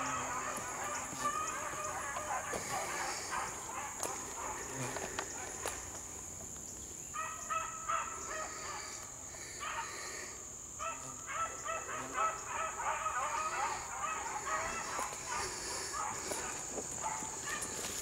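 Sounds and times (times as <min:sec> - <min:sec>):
dogs baying: 0:00.0 - 0:05.8, 0:07.2 - 0:18.0.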